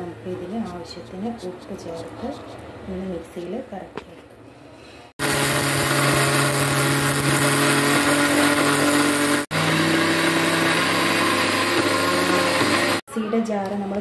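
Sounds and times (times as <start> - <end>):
mixer grinder running: 5.2 - 13.0.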